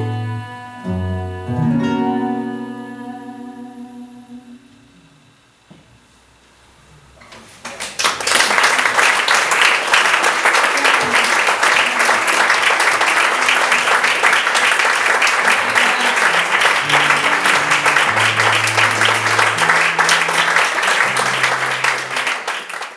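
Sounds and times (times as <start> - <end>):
audience applauding: 7.6 - 22.9
low acoustic guitar notes: 15.6 - 22.2.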